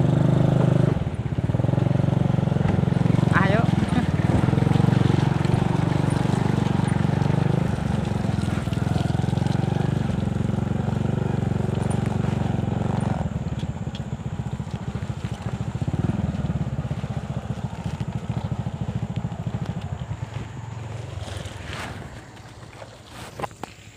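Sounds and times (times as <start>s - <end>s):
small motorcycle engine running: 0.0s - 23.7s.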